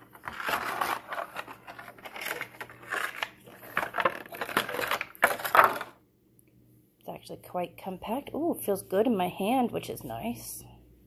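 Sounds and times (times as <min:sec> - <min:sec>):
plastic tray crinkling and creaking: 0:00.0 - 0:06.0.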